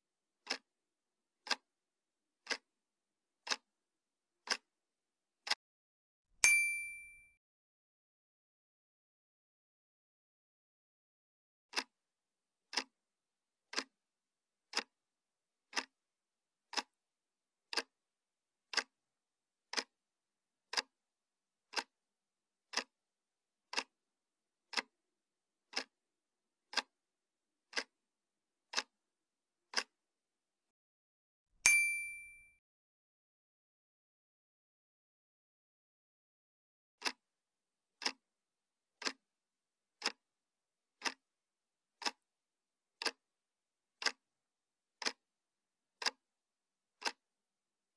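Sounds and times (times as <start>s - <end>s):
clock ticking: 0.4s - 0.7s, 1.4s - 1.7s, 2.4s - 2.7s, 3.4s - 3.7s, 4.4s - 4.7s, 11.7s - 12.0s, 12.6s - 13.0s, 13.7s - 14.0s, 14.7s - 15.0s, 15.7s - 16.0s, 16.7s - 17.0s, 17.7s - 18.0s, 18.7s - 19.0s, 19.7s - 20.0s, 20.7s - 21.0s, 21.7s - 22.0s, 22.7s - 23.0s, 23.7s - 24.0s, 24.7s - 25.0s, 25.7s - 26.0s, 26.7s - 27.0s, 27.7s - 28.0s, 28.7s - 29.0s, 29.7s - 30.0s, 37.0s - 37.2s, 38.0s - 38.2s, 39.0s - 39.2s, 40.0s - 40.3s, 41.0s - 41.3s, 42.0s - 42.2s, 43.0s - 43.2s, 44.0s - 44.3s, 45.0s - 45.2s, 46.0s - 46.2s, 47.0s - 47.2s
bright ding: 6.4s - 7.4s, 31.7s - 32.6s.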